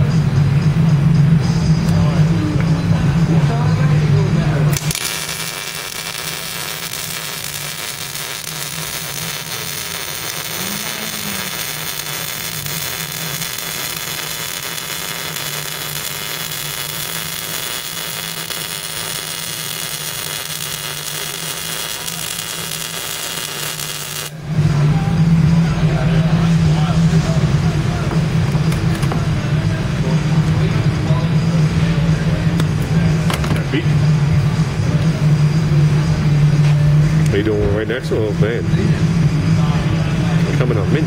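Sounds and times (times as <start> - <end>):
welder arc hissing: 4.7 - 24.4.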